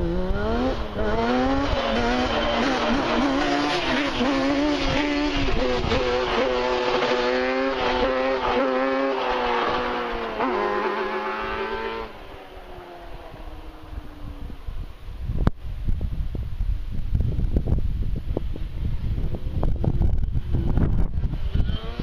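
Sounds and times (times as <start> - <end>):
two-stroke quad engine revving: 0.0 - 12.2, 20.6 - 22.0.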